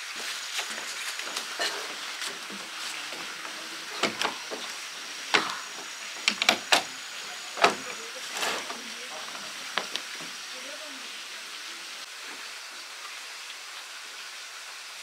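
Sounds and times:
background hiss: 0.0 - 15.0
camping chair clicking and knocking: 0.6 - 4.7, 5.3 - 7.0, 8.6 - 10.3.

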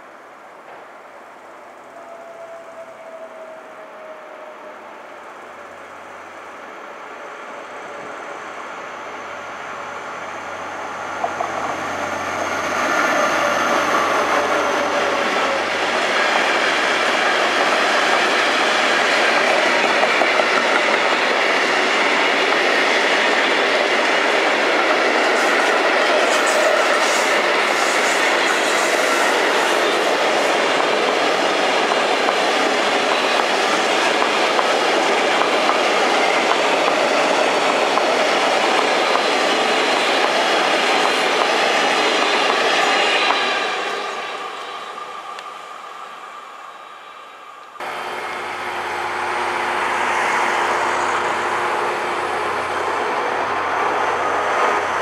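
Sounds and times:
diesel locomotive engine hum: 0.1 - 55.0
wheels clickety-clack on rails: 14.0 - 43.9.

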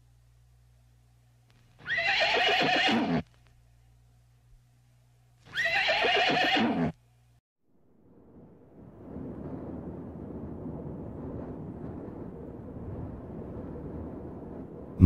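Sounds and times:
horse whinnying: 1.8 - 3.2, 5.5 - 7.0.

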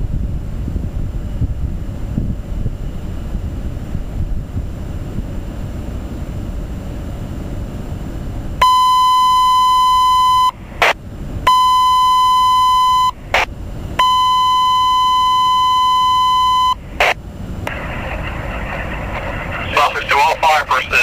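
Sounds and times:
long high radio beeps: 8.6 - 21.0
squelch static bursts: 12.9 - 13.5, 16.7 - 21.0.

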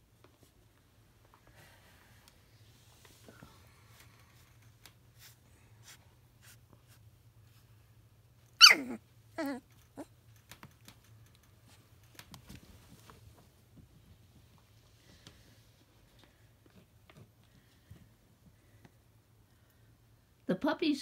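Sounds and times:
puppy crying: 8.6 - 10.1.

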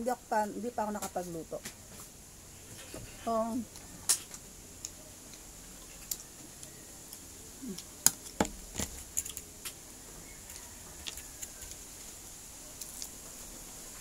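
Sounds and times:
crunchy biting and chewing: 10.4 - 11.8.

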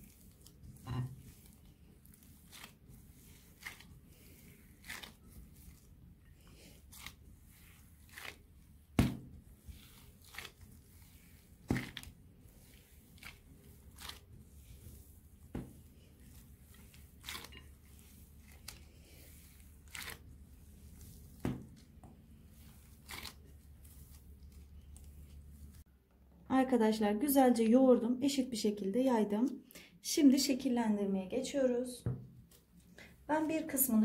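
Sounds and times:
dough squishing: 0.0 - 25.9.

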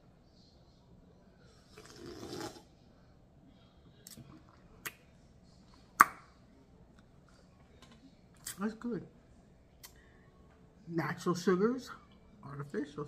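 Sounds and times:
sip from soda can: 1.6 - 2.7.

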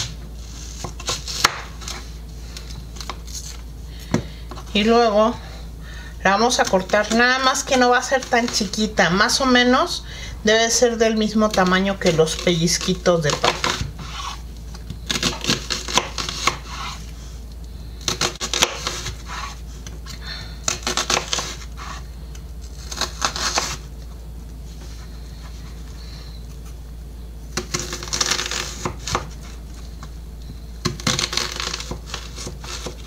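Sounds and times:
knife cutting onion on board: 0.0 - 2.0, 11.4 - 14.4, 15.1 - 17.0, 18.1 - 19.6, 22.8 - 23.8, 27.6 - 29.4, 30.8 - 33.0.

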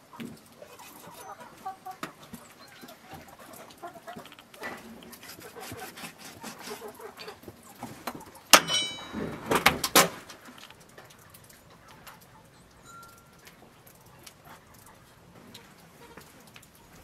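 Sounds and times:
knife slicing and scraping meat: 5.1 - 7.0
metallic clink: 8.6 - 9.3.

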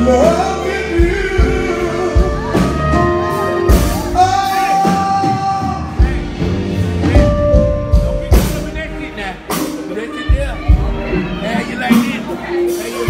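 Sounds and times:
man singing into microphone: 0.0 - 3.3, 4.1 - 6.2
live band bass and drums: 0.0 - 13.0.

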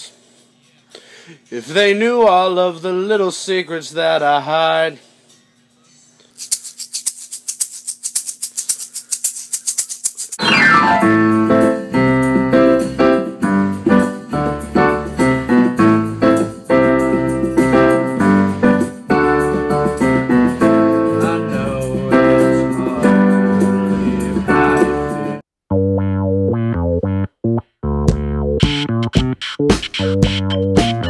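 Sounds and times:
digital piano chords: 10.4 - 31.0.

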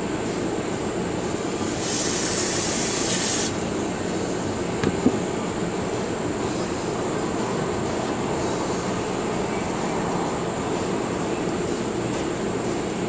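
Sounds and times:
aerosol spray hiss: 1.6 - 3.6.

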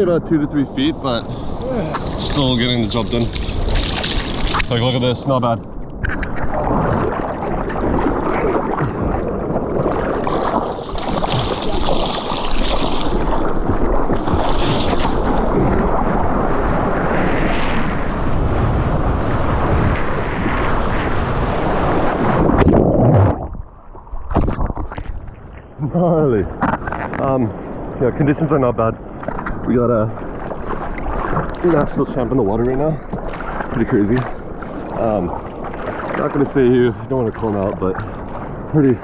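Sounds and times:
water rushing over surfboard: 0.0 - 39.0
wind buffeting microphone: 0.0 - 39.0.

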